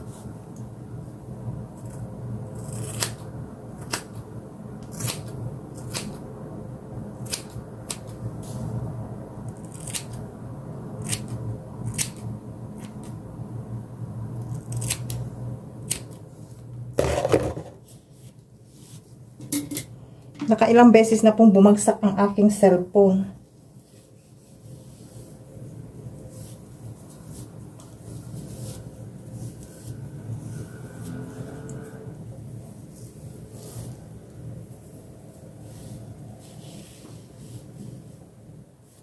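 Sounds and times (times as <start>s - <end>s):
scissors snipping hair: 9.6s - 10.2s, 11.0s - 12.2s.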